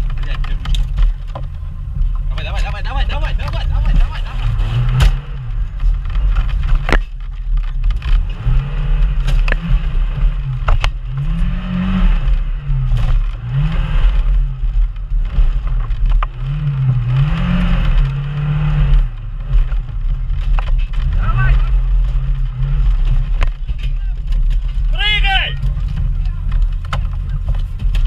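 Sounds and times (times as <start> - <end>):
vehicle body knocking and clattering: 0.0 - 8.4, 9.2 - 11.3, 18.9 - 28.0
engine revving: 0.0 - 28.0.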